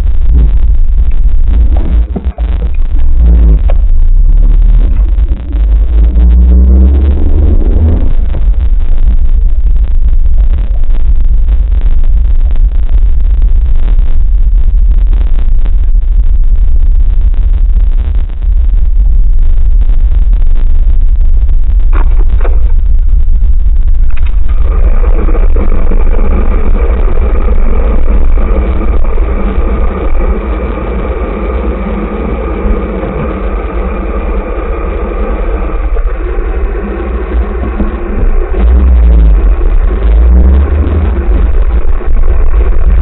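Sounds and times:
dense mixed hum: 0.0 - 43.0
wind and road noise rumble: 0.0 - 43.0.

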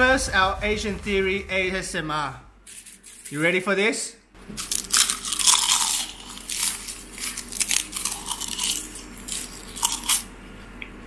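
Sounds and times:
crunching of chip being chewed: 4.6 - 10.3.

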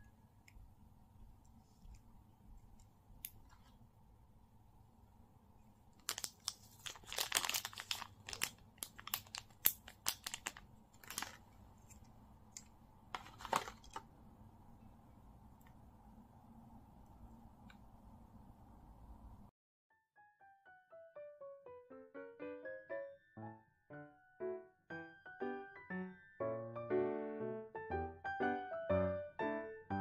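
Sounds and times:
plastic bag crinkling: 6.0 - 12.1, 13.1 - 14.1.

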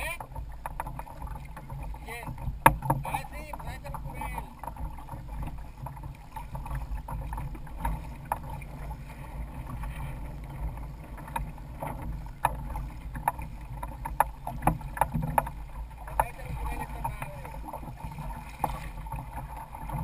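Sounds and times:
water sloshing against hulls: 0.0 - 20.0
sharp clicks and knocks: 0.2 - 8.5, 11.2 - 17.3.

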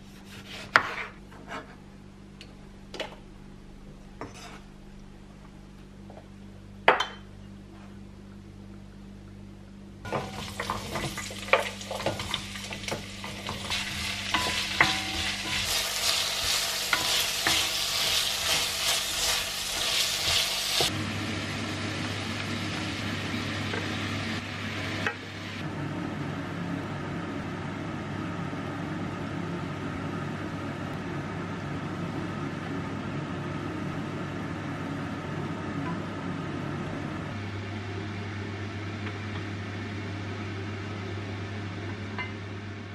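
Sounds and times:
wooden spoon scraping pot: 4.2 - 4.7
vegetables sizzling in oil: 10.1 - 25.6.

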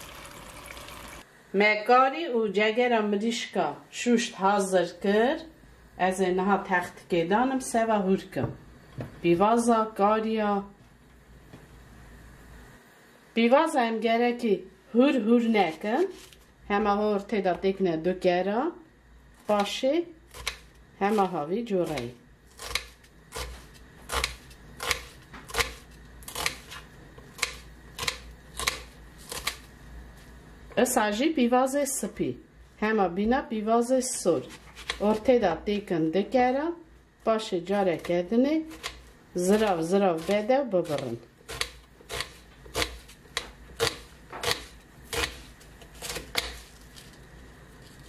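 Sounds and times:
knife slicing onion: 19.4 - 29.8, 34.4 - 35.5, 37.7 - 48.0.

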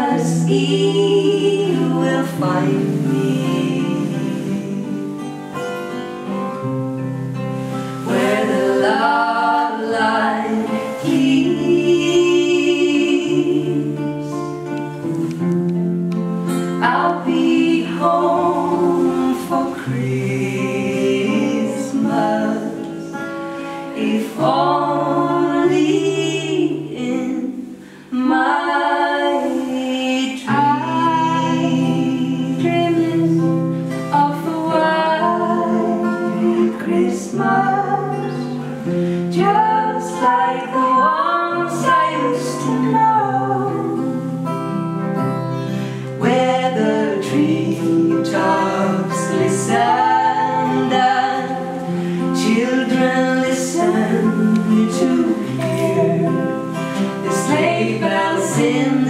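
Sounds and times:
women singing together: 0.0 - 5.6, 7.6 - 15.4, 16.4 - 59.0
acoustic guitars: 0.0 - 59.0.

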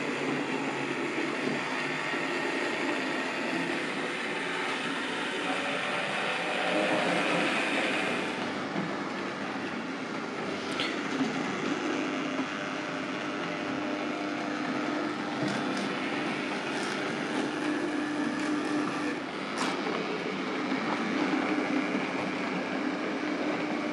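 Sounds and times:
hum: 0.0 - 23.9.

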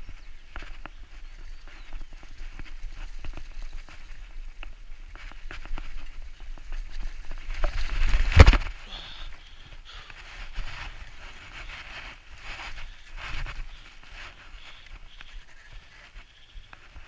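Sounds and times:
bike rattling over bumpy trail: 0.0 - 17.0.

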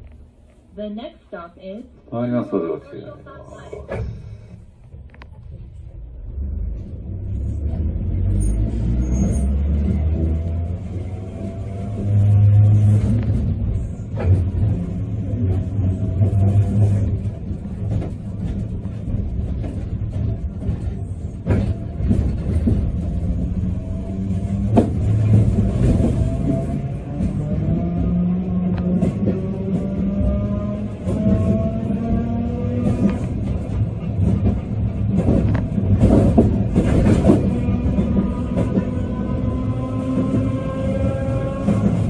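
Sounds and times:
streetcar motors and wheels rumbling: 0.0 - 42.0.

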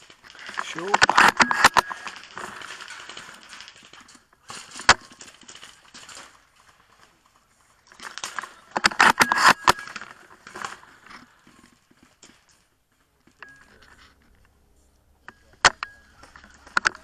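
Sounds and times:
rifle and kit handling rustles: 0.0 - 17.0.

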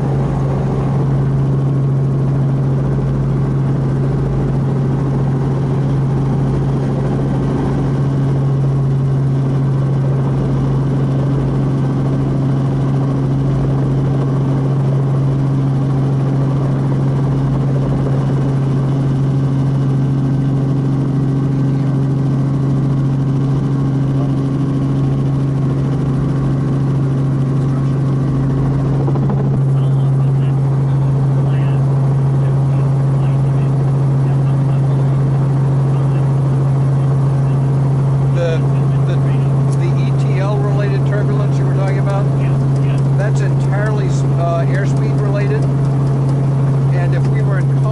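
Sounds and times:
helicopter engine and rotor: 0.0 - 47.9.

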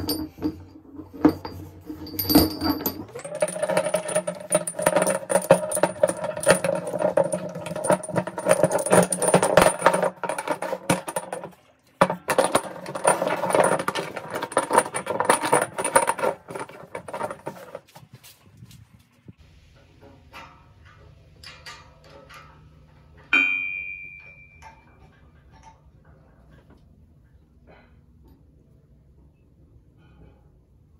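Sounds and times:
chain links clinking: 0.0 - 17.9
rag wiping chain: 0.0 - 18.0.

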